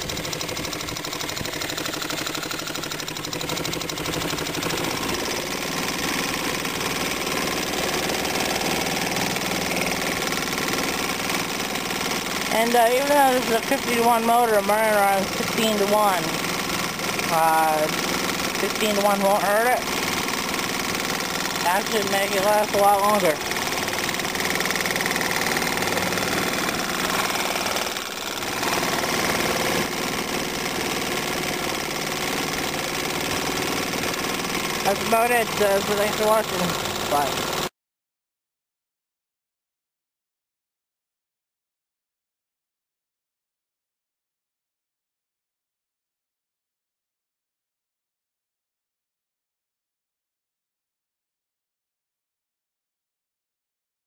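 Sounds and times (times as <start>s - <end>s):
outboard motor idling: 0.0s - 37.7s.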